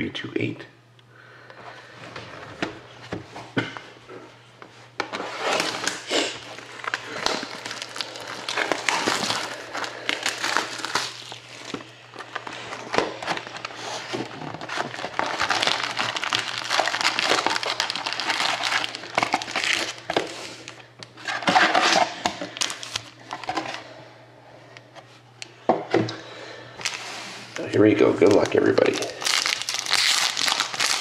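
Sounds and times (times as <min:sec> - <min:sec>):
foil packs and cardboard crinkling: 0:05.0 - 0:23.9, 0:26.8 - 0:31.0.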